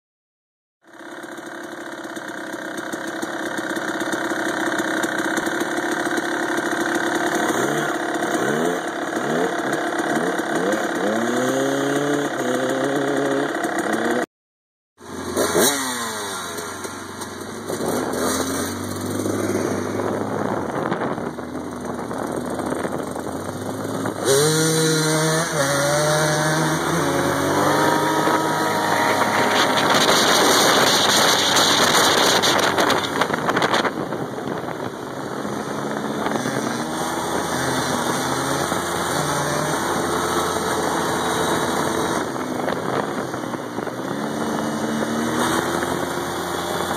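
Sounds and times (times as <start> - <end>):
dirt bike engine revving: 0.9 - 14.3, 15.0 - 46.9.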